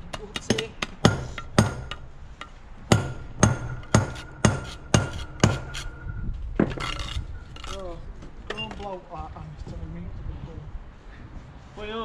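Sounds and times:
hammer blows with metallic ring: 0:00.2 - 0:06.2.

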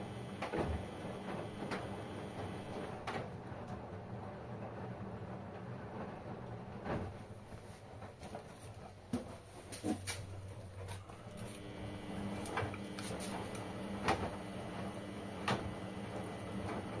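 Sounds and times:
washing machine motor hum: 0:00.0 - 0:17.0
laundry sloshing in drum: 0:06.1 - 0:17.0.

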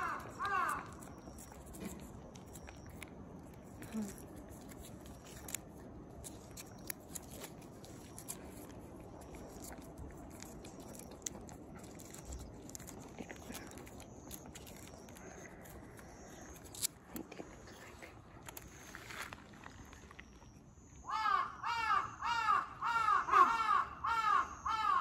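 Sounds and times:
cat licking and eating: 0:00.0 - 0:19.3.

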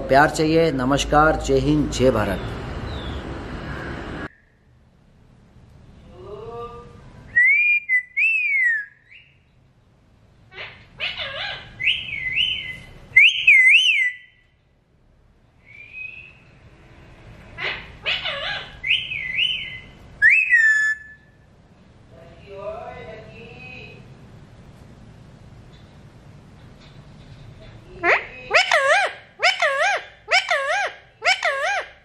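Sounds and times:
parakeet whistling: 0:07.3 - 0:09.4, 0:11.0 - 0:14.4, 0:15.7 - 0:16.5, 0:17.7 - 0:21.4
parakeet rough rising calls: 0:15.7 - 0:21.2.

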